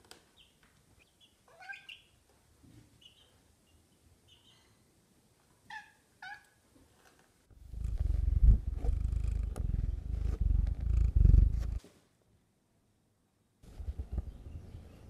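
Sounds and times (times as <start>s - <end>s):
cat purring: 7.5s - 11.8s.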